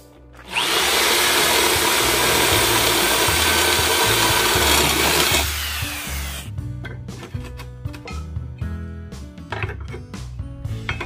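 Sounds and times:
electric drill boring metal: 0:00.4 - 0:06.5.

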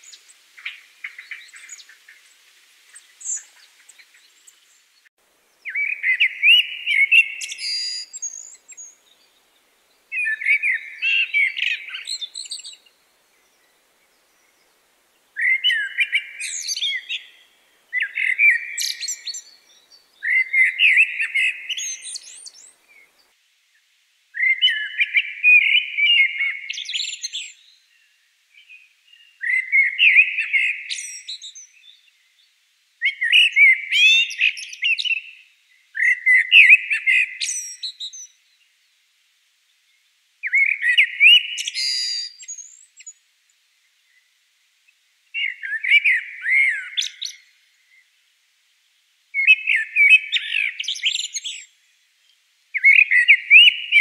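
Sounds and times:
blackbird singing: 0:05.6 - 0:09.4, 0:10.1 - 0:14.6, 0:15.4 - 0:23.2, 0:24.4 - 0:32.2, 0:33.0 - 0:38.4, 0:40.4 - 0:43.2, 0:45.4 - 0:48.0, 0:49.4 - 0:51.8, 0:52.8 - 0:54.0.

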